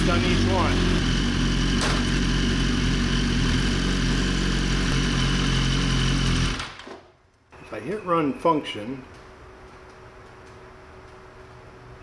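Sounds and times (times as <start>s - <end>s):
motorcycle engine idling: 0.0s - 6.6s.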